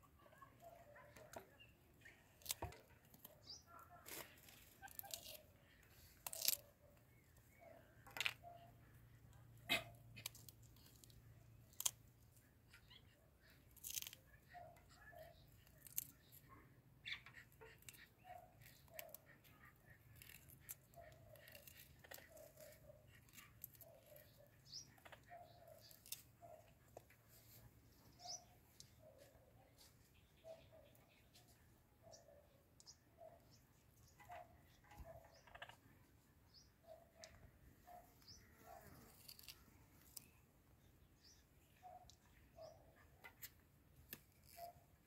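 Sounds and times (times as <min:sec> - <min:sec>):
parrot crunching fruit: 0:06.2 - 0:07.2.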